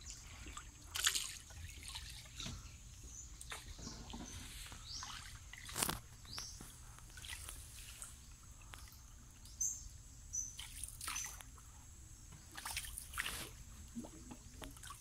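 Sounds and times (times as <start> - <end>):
soft splashes and drips: 0.0 - 9.6, 10.5 - 15.0
paddle stroking through water: 3.4 - 8.2, 12.6 - 15.0.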